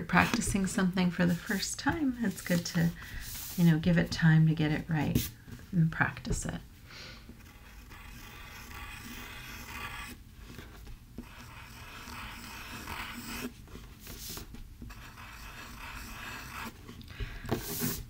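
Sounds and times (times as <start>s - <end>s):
pencil scratching on paper: 7.4s - 16.8s, 17.5s - 18.0s.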